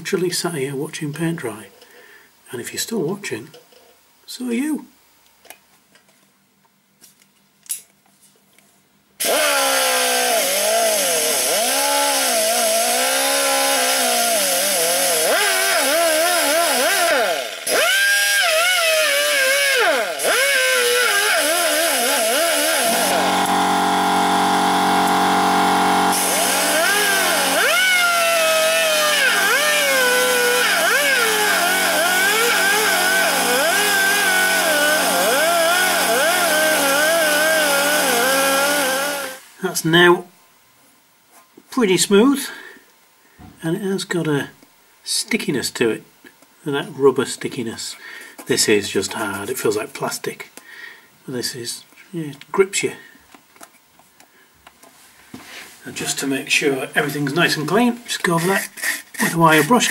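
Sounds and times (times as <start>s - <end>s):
pneumatic die grinder buffing rubber: 9.2s - 39.4s.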